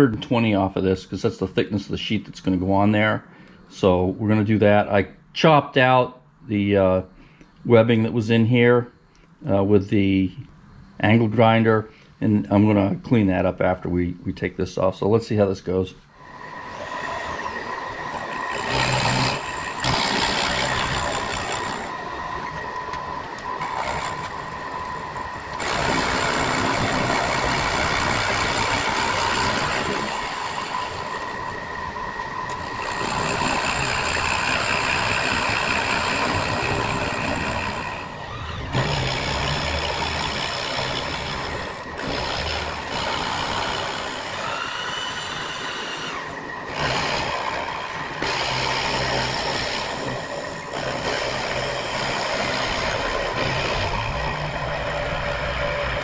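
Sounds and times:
rough metal cutting noise: 0:15.0 - 0:56.0
machine tool whine: 0:16.1 - 0:56.0.

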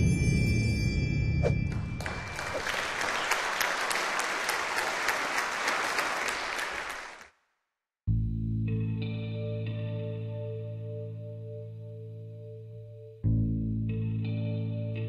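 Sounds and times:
audience applauding: 0:01.7 - 0:07.4.

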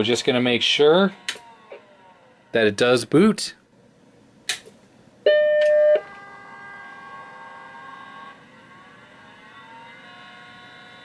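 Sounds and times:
hard drive spinning up: 0:01.1 - 0:02.6, 0:05.8 - 0:11.0.

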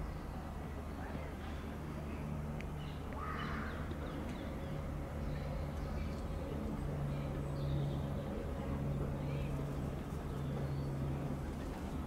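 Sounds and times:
low electric hum of train: 0:00.0 - 0:12.0.

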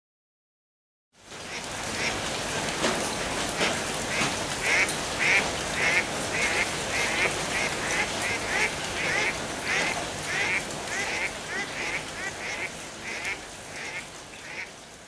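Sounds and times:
rain falling: 0:01.2 - 0:15.0
ducks quacking: 0:03.6 - 0:14.7.

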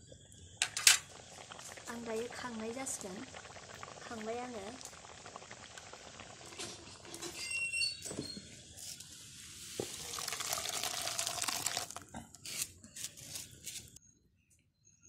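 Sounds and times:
metal wok clanking: 0:00.6 - 0:01.1
thick curry pouring into a pot: 0:04.7 - 0:07.5, 0:09.6 - 0:12.1.

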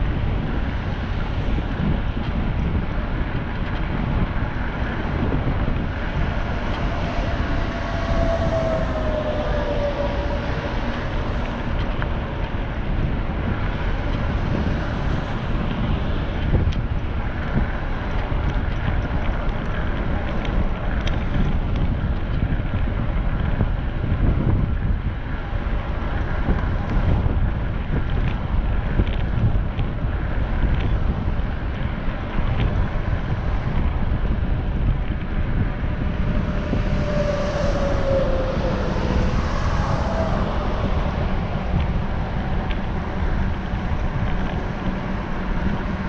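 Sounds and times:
steady low rumble: 0:00.0 - 0:46.0
wind buffeting microphone: 0:00.0 - 0:46.0
falling tone: 0:04.8 - 0:12.7, 0:35.2 - 0:46.0.

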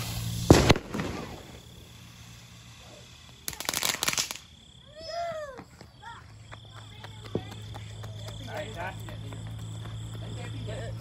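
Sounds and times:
firecrackers cracking: 0:00.0 - 0:05.1.

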